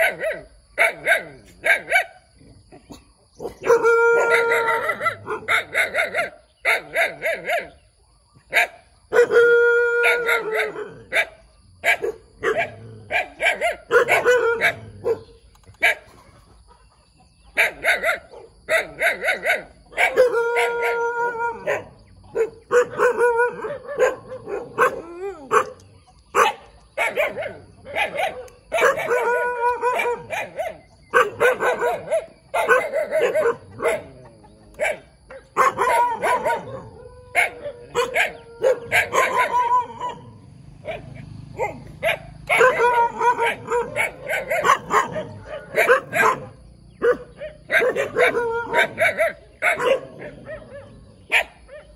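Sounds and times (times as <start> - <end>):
dogs barking: 0.0 - 16.2, 17.3 - 51.9
puppy yelping: 34.8 - 51.9.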